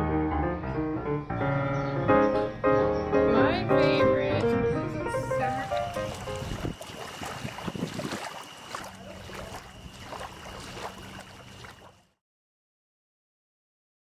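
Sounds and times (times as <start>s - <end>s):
wind on microphone: 4.4s - 8.5s
small waves lapping: 5.1s - 12.2s.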